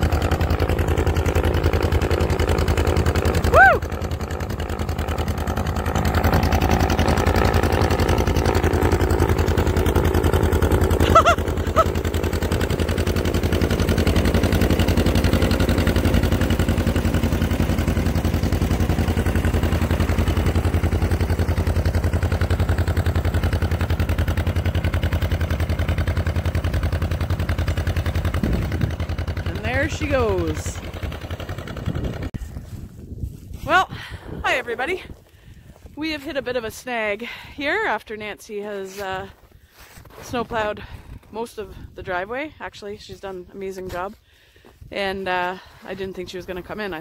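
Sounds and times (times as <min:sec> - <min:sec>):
tractor engine running: 0:00.0 - 0:47.0.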